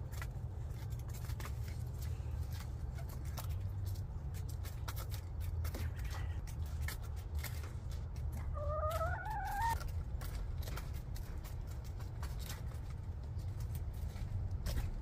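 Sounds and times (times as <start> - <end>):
hens pecking taps: 0.0 - 15.0
low steady rumble: 0.0 - 15.0
hen calling: 8.4 - 9.8.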